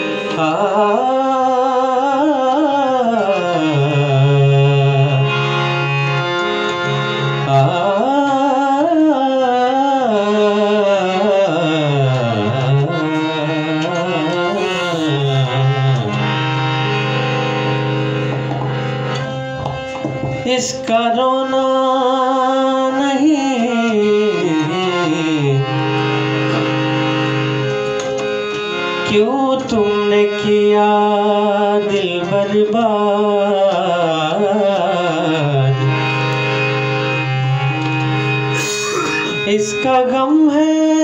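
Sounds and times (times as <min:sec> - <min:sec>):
harmonium held notes: 0:00.0 - 0:41.0
tabla: 0:00.0 - 0:41.0
man singing: 0:00.1 - 0:05.9, 0:07.4 - 0:16.4, 0:20.4 - 0:26.3, 0:29.0 - 0:36.2, 0:38.5 - 0:41.0.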